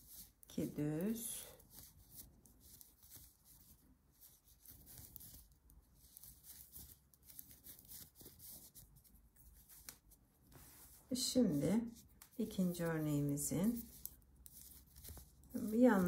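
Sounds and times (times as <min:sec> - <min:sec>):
knitting needles clicking: 0:13.0 - 0:16.0.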